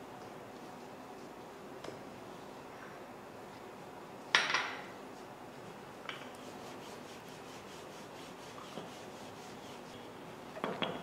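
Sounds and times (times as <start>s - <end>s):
rolling pin rubbing on dough: 6.3s - 10.2s.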